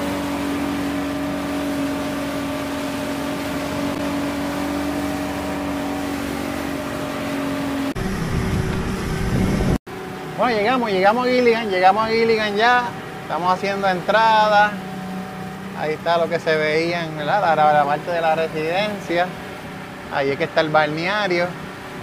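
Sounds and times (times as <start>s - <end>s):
boat motor humming: 0.0s - 22.0s
wind and water rushing: 0.0s - 22.0s
loud low rumble: 8.0s - 9.8s.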